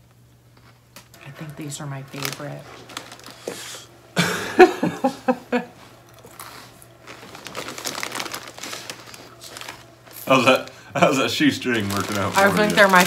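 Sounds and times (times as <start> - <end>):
plastic snack bag crinkling: 0.6 - 3.9, 6.0 - 13.0
person laughing quickly: 4.2 - 5.8.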